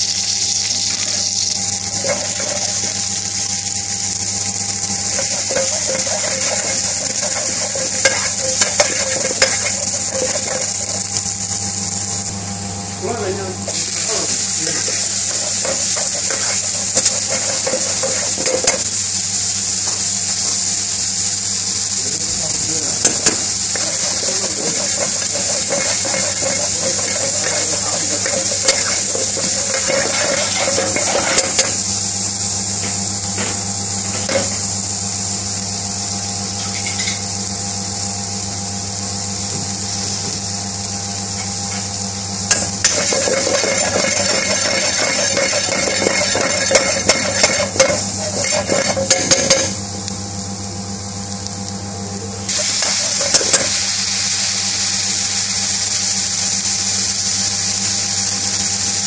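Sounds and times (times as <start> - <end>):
onions sizzling in a pan: 0.0 - 59.0
low hum: 1.6 - 12.6, 23.0 - 32.2.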